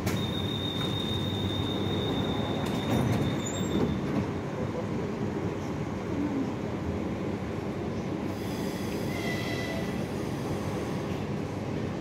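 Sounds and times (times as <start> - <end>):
train doors sliding shut: 0.0 - 4.4, 8.3 - 11.2.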